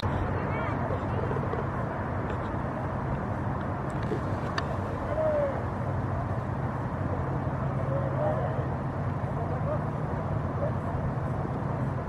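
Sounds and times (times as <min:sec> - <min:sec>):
low outdoor rumble: 0:00.0 - 0:12.0
faint distant shout: 0:05.0 - 0:05.9.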